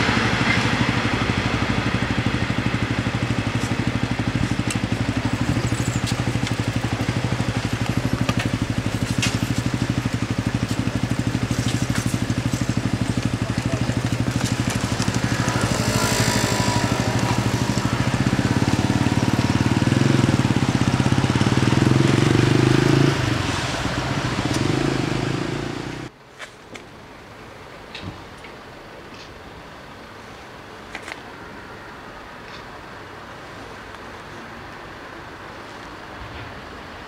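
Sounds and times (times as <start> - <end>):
combustion engine throbbing: 0.0 - 26.1.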